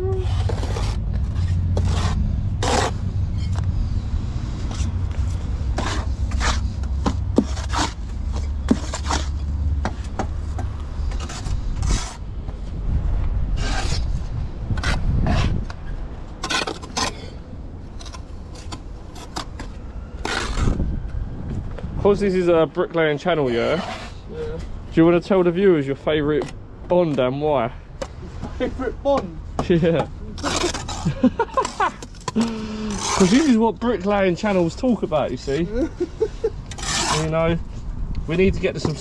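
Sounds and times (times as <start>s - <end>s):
steady low rumble: 0.0s - 23.1s
trowel scraping mortar: 0.1s - 3.6s, 5.7s - 9.4s, 11.0s - 12.2s, 16.4s - 17.4s, 23.3s - 24.3s, 29.7s - 35.6s, 36.4s - 37.6s
bricks scraped into mortar: 0.2s - 3.6s, 5.7s - 6.8s, 7.4s - 8.0s, 8.6s - 9.4s, 11.0s - 12.2s, 16.4s - 17.4s, 29.9s - 33.7s, 36.7s - 37.6s.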